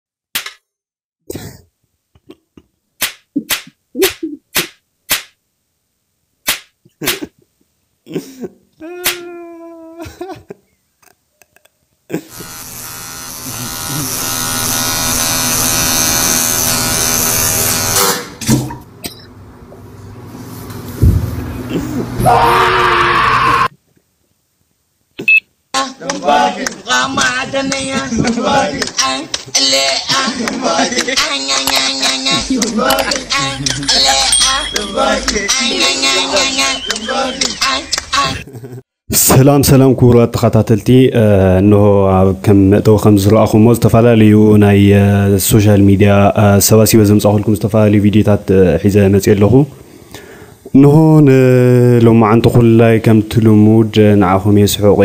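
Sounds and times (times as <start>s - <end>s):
cat swatting sharp slaps: 4.6s - 5.3s, 6.5s - 7.2s
loud sound cutting off: 12.3s - 18.4s
short high beep: 25.2s - 25.4s
pitched voice-like tone: 35.0s - 38.5s.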